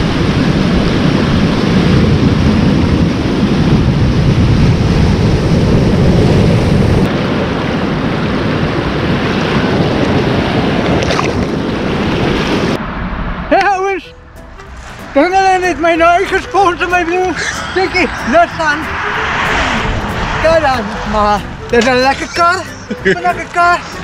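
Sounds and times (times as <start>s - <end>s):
sea surf breaking over rocks: 0.0s - 12.8s
wind buffeting microphone: 0.0s - 24.0s.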